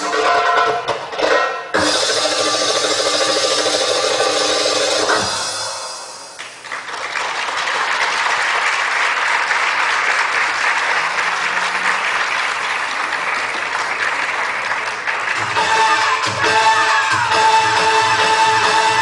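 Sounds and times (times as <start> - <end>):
stage music: 0.0 - 19.0
audience applause: 6.4 - 17.4.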